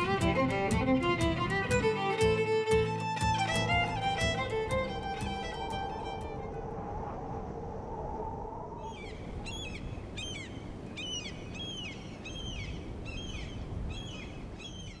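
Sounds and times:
steady low rumble: 2.5s - 10.9s
bird calling: 8.8s - 15.0s.

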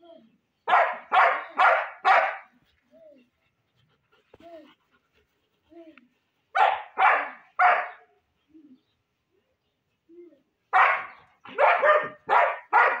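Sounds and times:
dogs barking: 0.7s - 2.5s, 6.5s - 8.1s, 10.7s - 13.0s.

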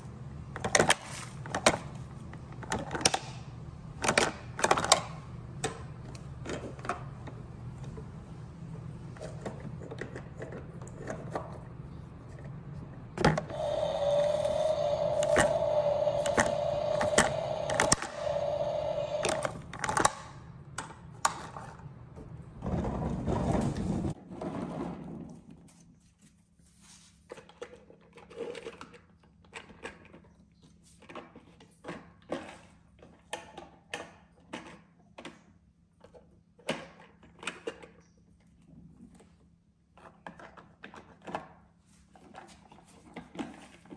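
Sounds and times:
toy electric motor whine: 13.5s - 19.7s
low rumble: 13.5s - 19.8s.

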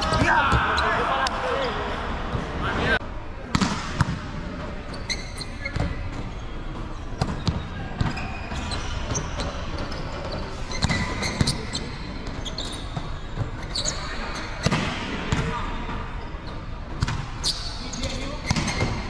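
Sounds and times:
shoe squeaks: 4.8s - 14.6s, 17.4s - 19.0s.

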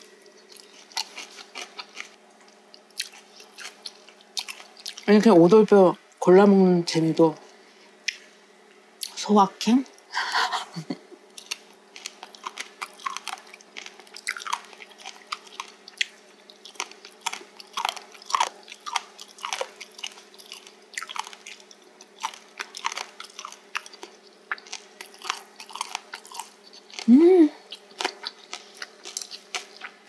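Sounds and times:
crunchy chewing: 0.0s - 5.1s, 11.3s - 30.0s.

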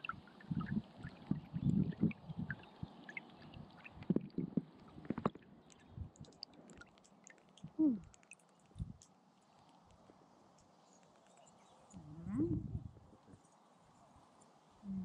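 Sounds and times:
water drips and splashes: 0.0s - 12.0s.

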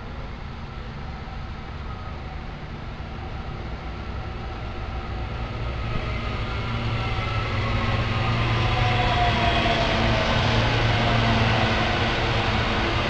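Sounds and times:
train pulling in: 0.0s - 13.0s.

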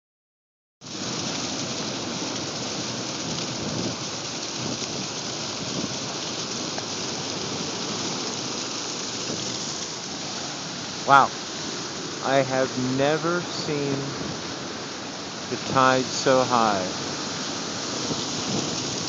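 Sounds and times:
heavy surf breaking over rocks: 0.9s - 19.0s.

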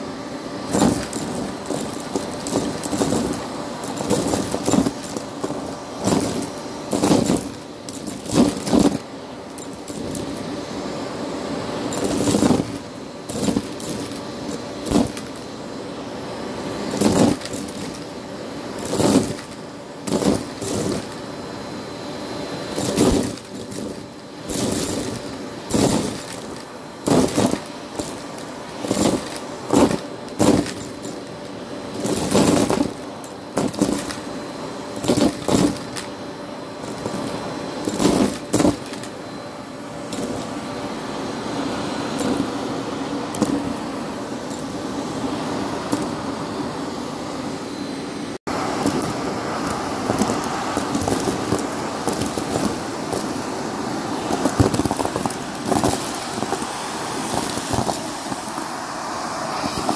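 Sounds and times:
short rattling bursts: 0.0s - 11.0s, 11.7s - 21.6s, 22.4s - 39.2s, 48.5s - 58.8s
vacuum cleaner motor hum: 0.0s - 59.9s.

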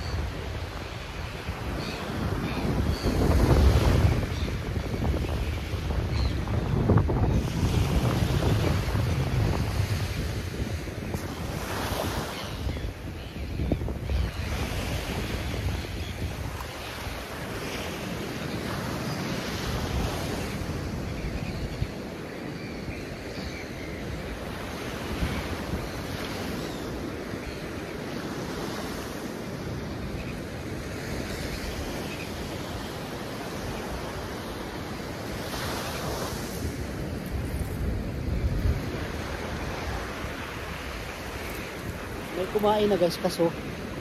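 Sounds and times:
wind buffeting microphone: 0.0s - 18.0s, 35.3s - 44.0s
surf washing on beach: 0.0s - 44.0s.

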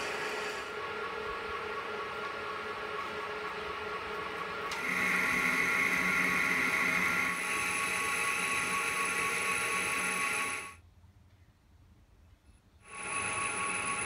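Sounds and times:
metal lathe whining: 0.0s - 10.8s, 12.8s - 14.0s
lathe tool cutting metal: 1.6s - 10.8s, 12.9s - 14.0s.

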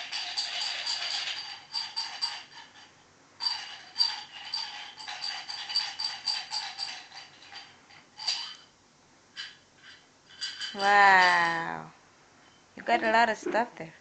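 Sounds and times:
metal object rattling: 0.0s - 8.7s, 9.4s - 11.4s.

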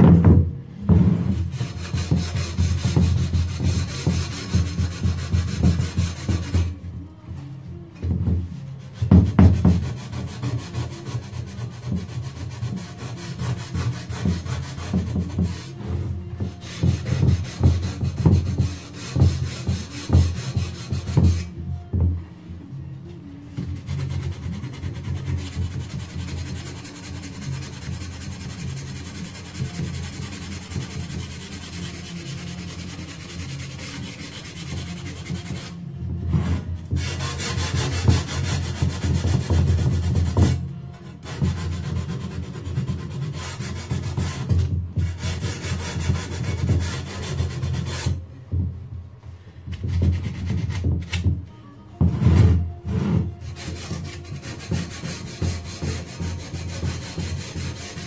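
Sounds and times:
tool filing against wood frame: 1.0s - 6.8s, 8.8s - 21.6s, 23.6s - 48.2s, 52.1s - 58.0s.

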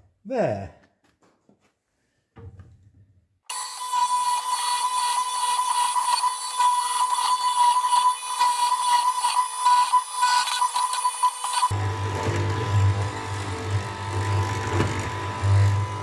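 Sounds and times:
mortiser machine whining: 3.5s - 16.0s.

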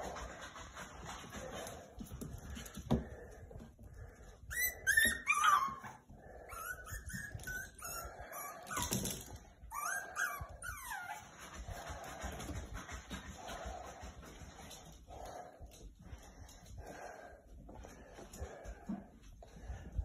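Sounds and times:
puppies yipping and whining: 4.4s - 11.7s.

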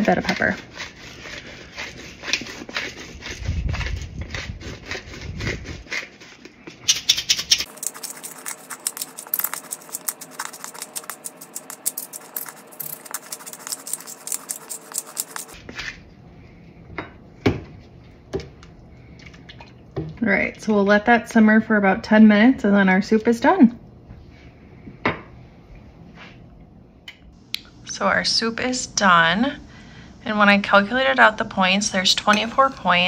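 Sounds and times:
pepper grinder crunching clicks: 6.9s - 15.6s.

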